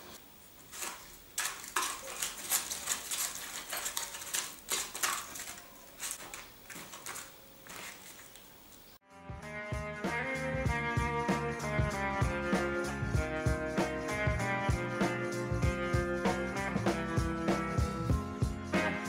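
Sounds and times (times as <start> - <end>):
brush scraping a plastic tray: 0.6 - 8.4.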